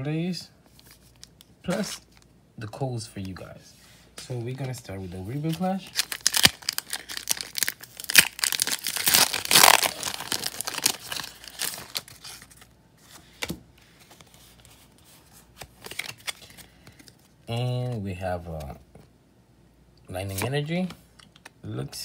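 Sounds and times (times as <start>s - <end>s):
foil wrapper tearing and crinkling: 5.9s - 12.7s.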